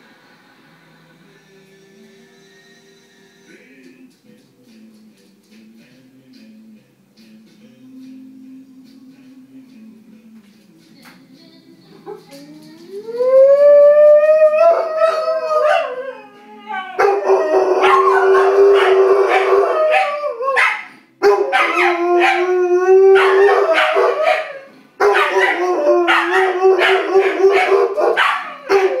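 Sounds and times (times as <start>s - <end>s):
dog howling: 12.4s - 29.0s.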